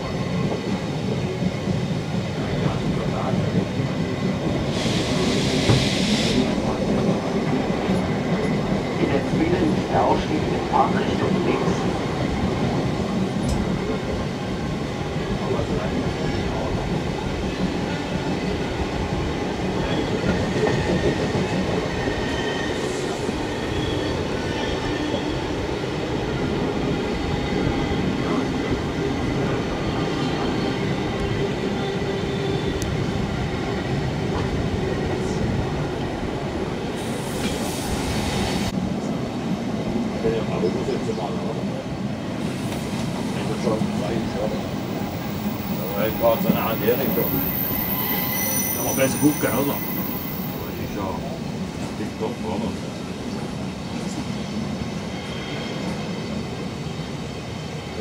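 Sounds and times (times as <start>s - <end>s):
train wheels rumbling on rails: 0.0s - 58.0s
faint squealing from running gear: 45.8s - 50.8s.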